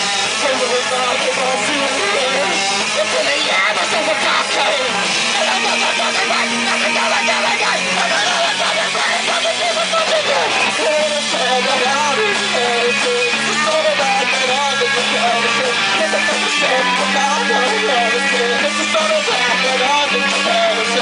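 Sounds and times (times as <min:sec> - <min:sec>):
drum kit: 0:00.0 - 0:21.0
electric guitar: 0:00.0 - 0:21.0.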